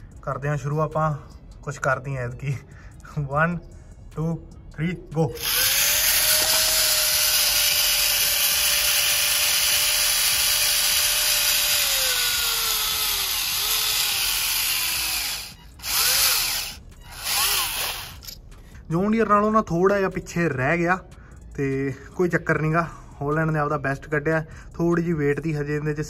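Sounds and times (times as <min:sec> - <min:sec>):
toy tractor motor whirring: 0:05.4 - 0:18.4.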